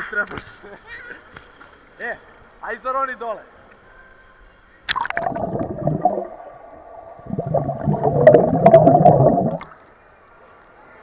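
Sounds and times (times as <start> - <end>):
muffled underwater splashing: 4.9 - 9.9.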